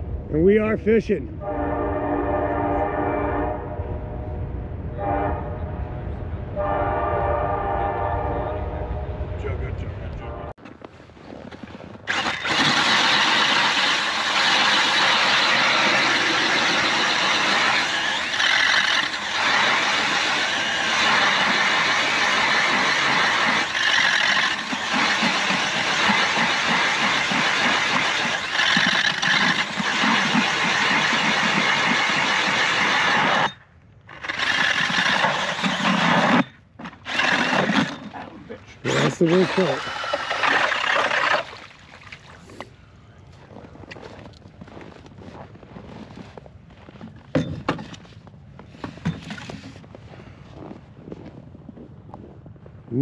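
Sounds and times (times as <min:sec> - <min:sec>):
ice auger drilling through ice: 0:12.0 - 0:41.7.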